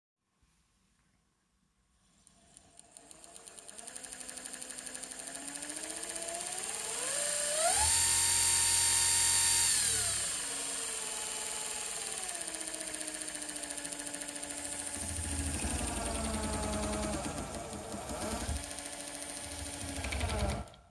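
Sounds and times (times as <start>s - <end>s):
electric motor whine: 3.0s - 20.9s.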